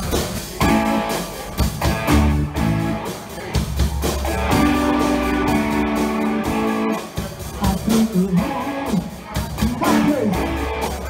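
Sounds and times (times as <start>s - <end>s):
drums: 0.0s - 11.0s
electric guitar chords: 0.4s - 3.2s, 4.2s - 11.0s.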